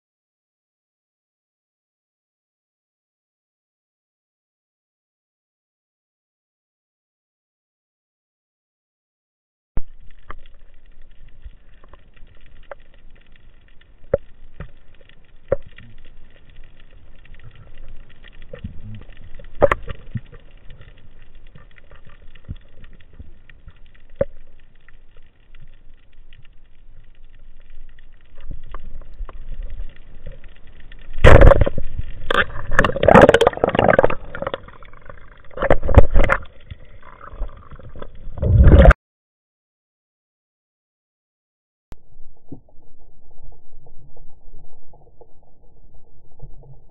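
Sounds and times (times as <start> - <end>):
small clicks and knocks: 9.8 - 38.2
low underwater noise: 9.8 - 39.0, 41.9 - 46.9.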